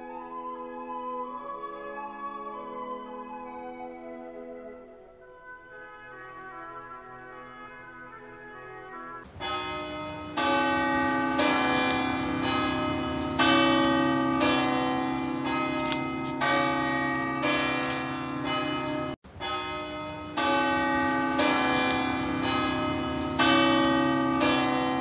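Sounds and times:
church bells ringing: 9.3 - 25.0.

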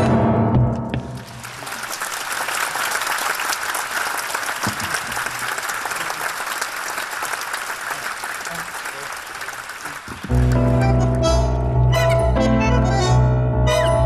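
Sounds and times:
audience applauding: 1.1 - 11.2.

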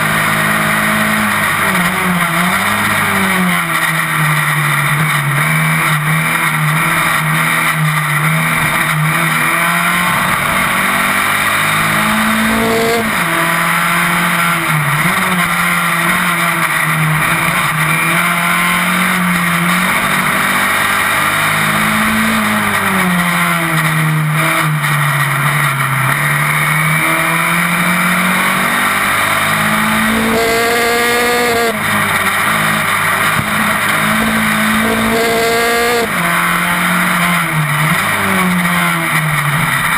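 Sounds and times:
race car engine revving: 0.0 - 39.9
wind and road noise: 0.0 - 39.9.

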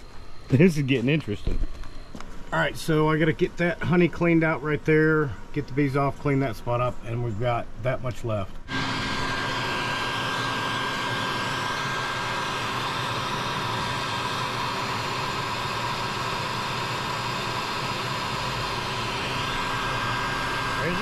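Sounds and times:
motor running with whooshing drone: 8.6 - 21.0.

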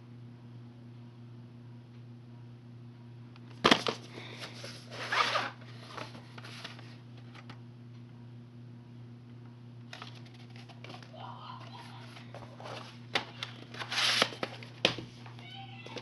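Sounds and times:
cassette scraping and rustling: 3.7 - 7.6, 9.9 - 11.1, 11.7 - 14.9.

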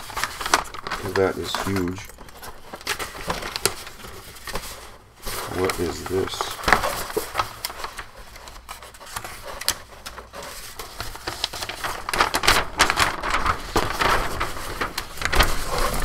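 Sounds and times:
paper rustling and crinkling: 0.0 - 16.0.

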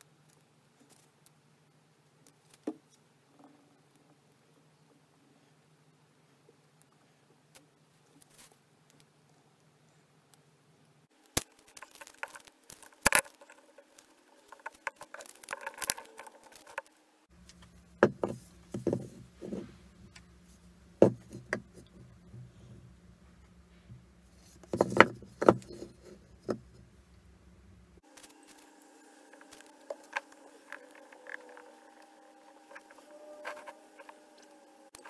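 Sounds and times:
wooden blocks knocking: 21.0 - 22.5, 24.7 - 26.8.

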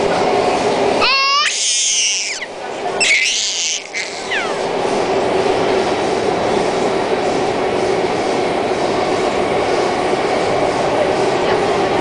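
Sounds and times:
metro train running: 0.0 - 12.0.

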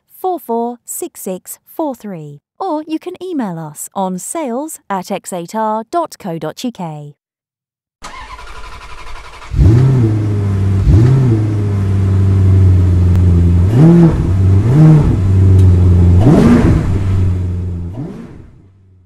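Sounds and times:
car engine revving: 8.0 - 19.0.

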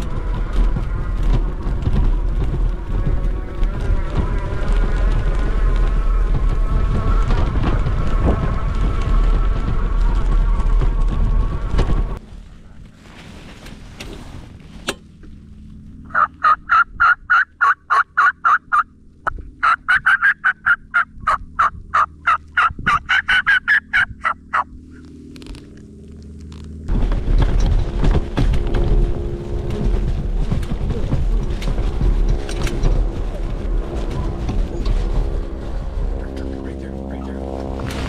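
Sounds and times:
rush of riding noise: 0.0 - 38.0
turkey calling: 16.1 - 18.9, 19.6 - 25.1, 36.1 - 37.5.

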